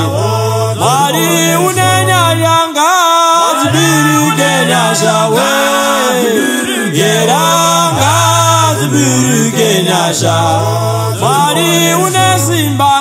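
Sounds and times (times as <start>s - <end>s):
voices singing together: 0.0s - 13.0s.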